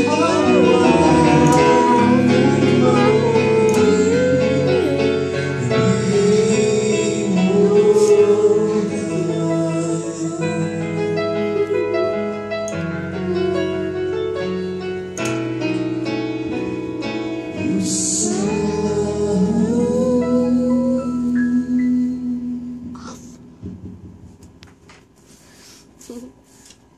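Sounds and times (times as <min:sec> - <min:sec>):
man singing into microphone: 0:00.0 - 0:11.7, 0:17.5 - 0:23.3
electric keyboard chords: 0:00.0 - 0:25.2.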